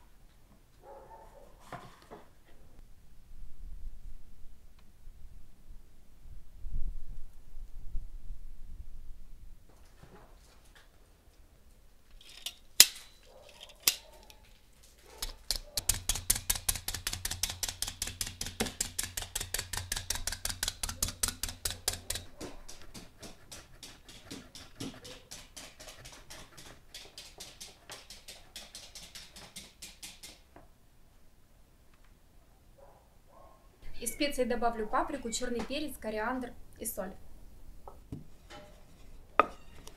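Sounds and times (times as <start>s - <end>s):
meat tenderizer clicking: 15.2s - 25.7s
sharp knocks: 15.2s - 30.4s.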